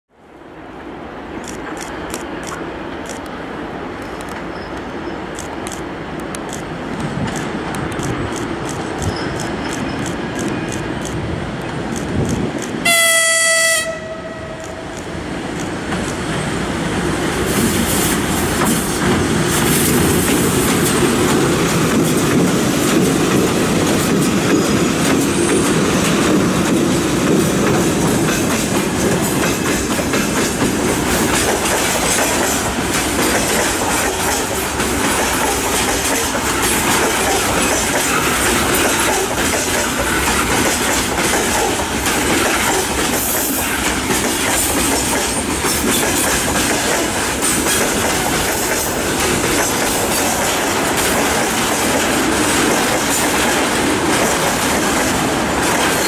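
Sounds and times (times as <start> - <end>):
locomotive horn blast: 12.8 - 14.9.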